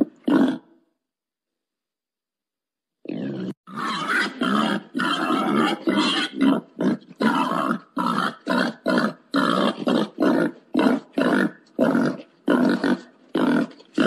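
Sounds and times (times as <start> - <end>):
wild boar grunting: 3.0 - 14.0.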